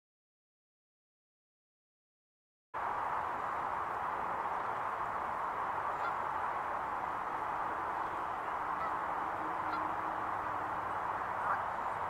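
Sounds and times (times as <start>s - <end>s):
steady hiss: 2.8s - 12.0s
geese honking: 5.8s - 12.0s.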